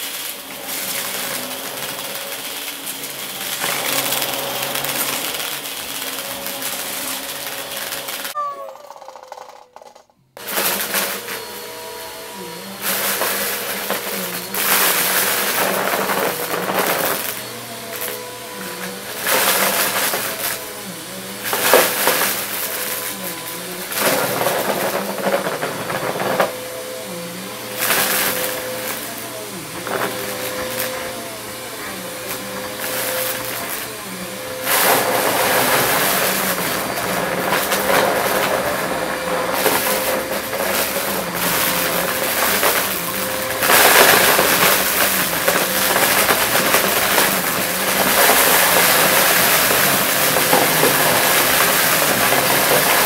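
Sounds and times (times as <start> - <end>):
vacuum cleaner running: 0.0 - 8.9, 10.4 - 53.0
small debris rattling up suction: 34.6 - 53.0.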